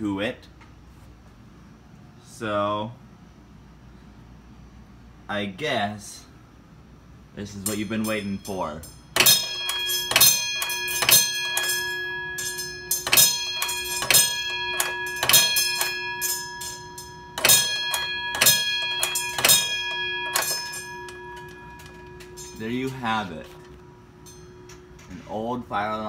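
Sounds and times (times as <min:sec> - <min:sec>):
mechanical alarm bell ringing: 0:07.4 - 0:26.0.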